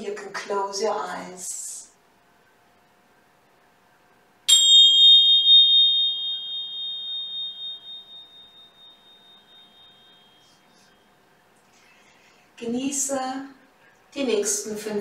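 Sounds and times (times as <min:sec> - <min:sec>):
metal chime ringing: 0:04.5 - 0:11.3.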